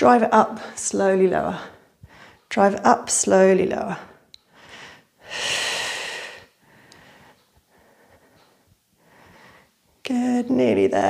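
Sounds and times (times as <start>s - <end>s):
woman breathing: 1.5s - 2.5s, 4.0s - 10.0s.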